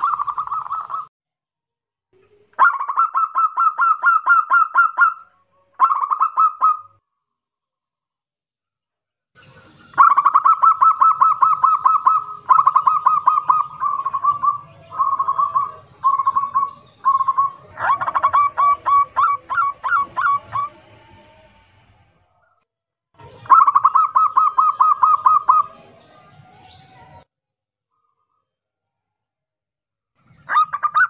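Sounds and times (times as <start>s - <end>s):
dove cooing trills: 0.0s - 1.1s, 2.6s - 7.0s, 9.9s - 21.7s, 23.3s - 25.9s, 30.4s - 31.0s
drawn-out slurred coos: 10.0s - 22.2s.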